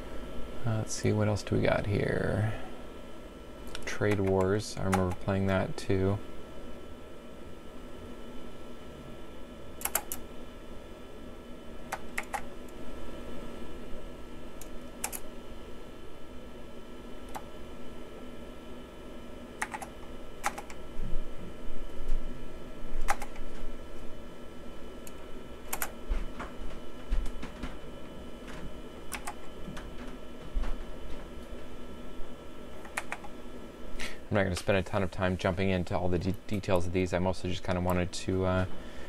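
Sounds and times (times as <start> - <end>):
steady low hum: 0.0 - 39.0
keyboard key clicks: 19.6 - 20.8.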